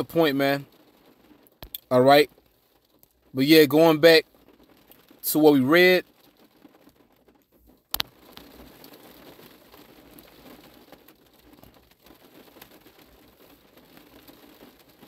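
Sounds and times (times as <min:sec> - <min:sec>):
faint crackling with ticks: 0:00.0 - 0:15.0.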